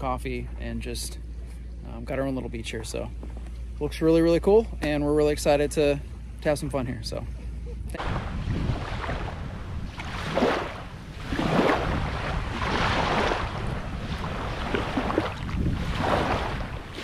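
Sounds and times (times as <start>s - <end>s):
seawater washing: 7.9s - 17.0s
wind on microphone: 7.9s - 17.0s.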